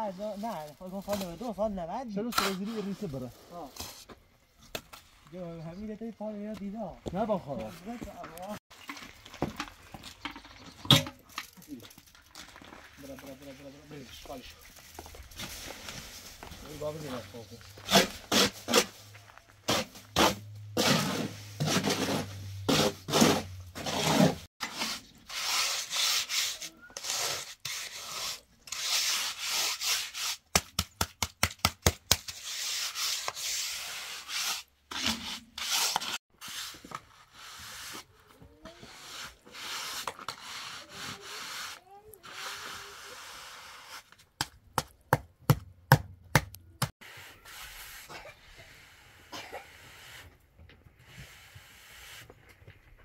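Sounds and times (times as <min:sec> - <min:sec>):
trowel scraping wet cement: 0:02.2 - 0:04.1, 0:17.8 - 0:19.0, 0:19.6 - 0:30.8, 0:31.8 - 0:44.2.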